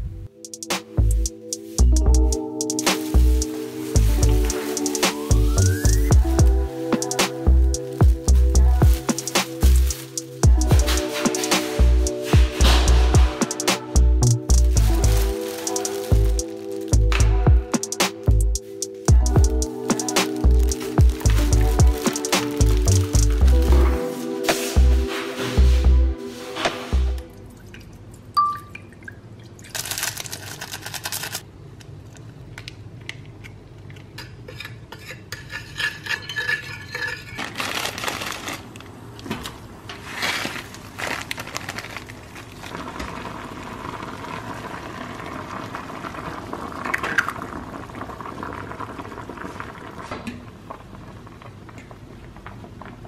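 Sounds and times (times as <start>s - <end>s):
fork stirring noodles: 34.2s - 37.5s
pot and utensil clatter: 34.2s - 37.6s
water pouring into saucepan: 42.6s - 50.1s.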